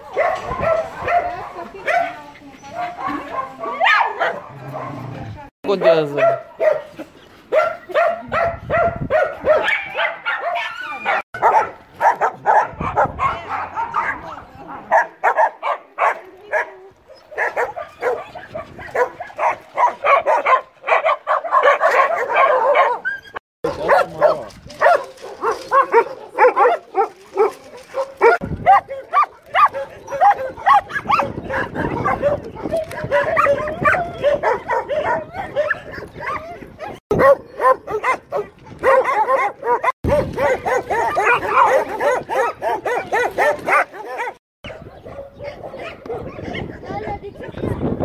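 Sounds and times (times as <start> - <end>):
dogs barking and yelping: 0.0 - 48.0.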